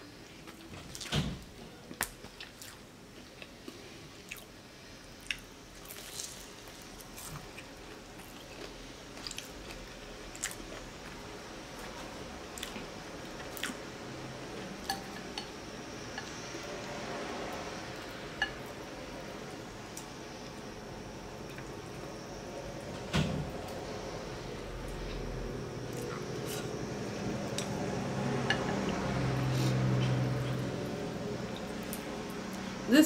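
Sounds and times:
chewing crunchy food: 0:01.9 - 0:04.5, 0:05.2 - 0:13.8.

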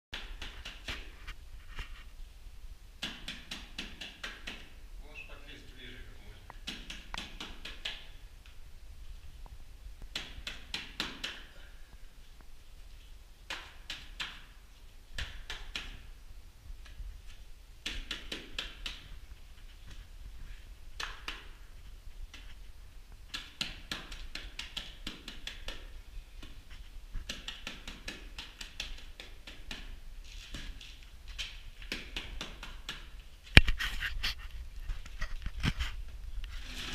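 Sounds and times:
wet plaster smacking on wall: 0:00.2 - 0:01.2, 0:03.0 - 0:04.8, 0:06.5 - 0:08.2, 0:10.1 - 0:11.7, 0:13.4 - 0:14.6, 0:15.2 - 0:16.1, 0:17.8 - 0:19.2, 0:21.0 - 0:22.6, 0:23.2 - 0:33.8.

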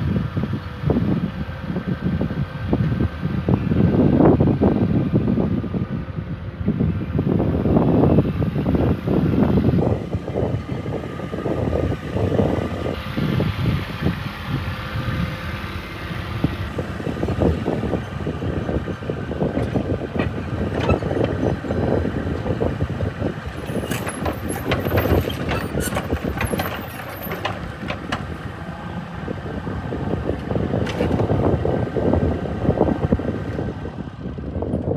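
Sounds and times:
excavator diesel engine running: 0:00.0 - 0:34.9
metallic clanks and rattles: 0:23.6 - 0:28.5.

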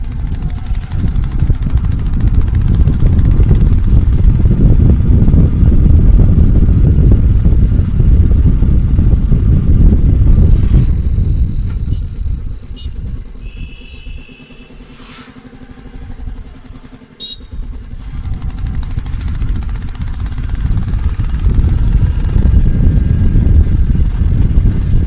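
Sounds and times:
motorcycle exhaust rumble: 0:00.0 - 0:25.0.

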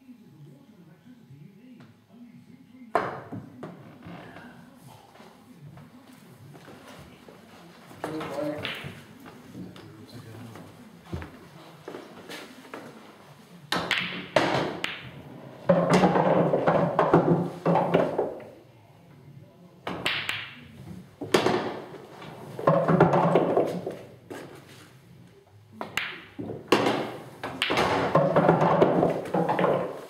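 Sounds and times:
pool balls clacking: 0:13.7 - 0:18.6, 0:21.2 - 0:24.6, 0:25.8 - 0:30.0.

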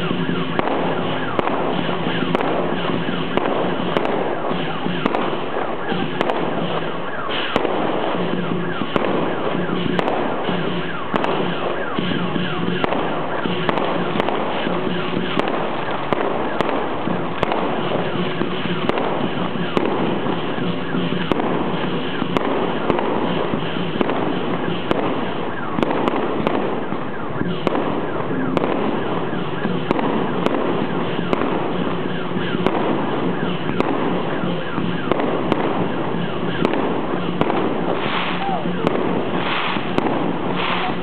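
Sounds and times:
fireworks bangs: 0:00.0 - 0:41.0
fireworks crackling: 0:00.0 - 0:41.0.

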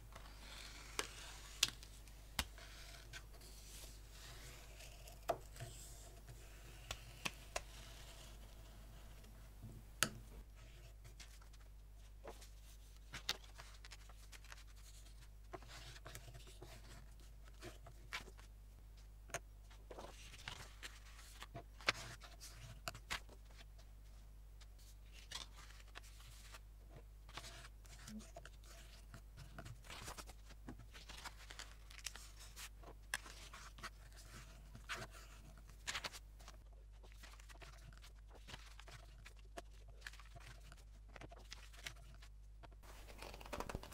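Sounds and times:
paper rustling: 0:27.3 - 0:43.9.

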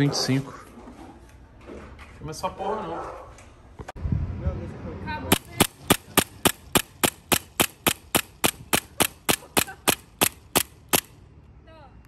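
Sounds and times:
airsoft pistol shots: 0:05.3 - 0:11.2.

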